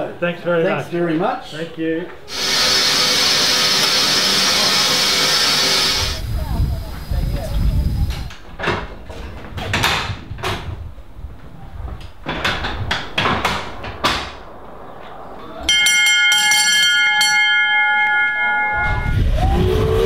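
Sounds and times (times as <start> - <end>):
sharp knocks and clicks: 12.0 - 14.4
bell ringing rapidly: 15.7 - 19.3.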